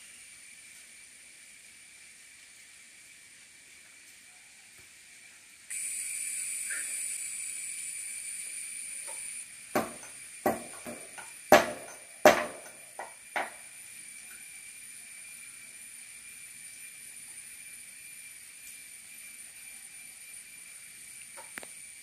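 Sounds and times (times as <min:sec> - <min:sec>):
mortar and pestle knocks: 0:09.8 - 0:12.7.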